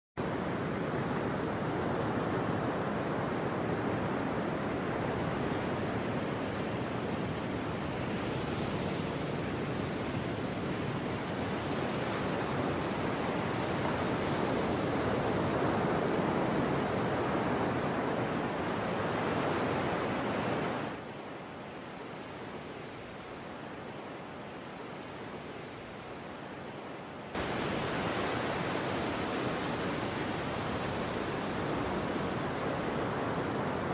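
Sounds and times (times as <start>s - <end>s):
waves breaking: 27.3s - 33.9s.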